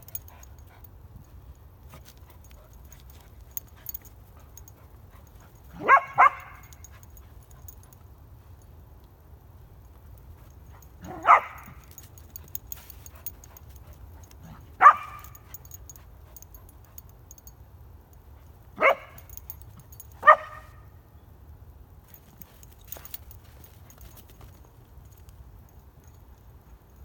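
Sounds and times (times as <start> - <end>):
puppy barking: 5.7 - 6.8, 11.0 - 11.9, 14.8 - 15.4, 18.8 - 19.3, 20.2 - 20.8.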